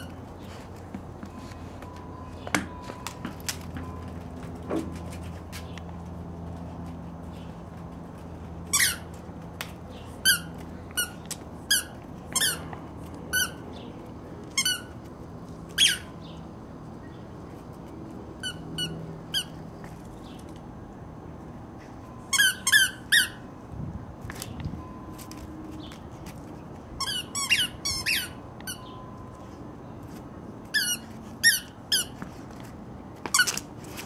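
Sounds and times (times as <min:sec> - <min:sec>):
dog toy squeaking: 0:08.7 - 0:09.2, 0:10.2 - 0:13.7, 0:14.5 - 0:15.0, 0:15.7 - 0:16.2, 0:18.4 - 0:19.6, 0:22.3 - 0:23.5, 0:27.0 - 0:29.0, 0:30.6 - 0:32.3, 0:33.2 - 0:33.7.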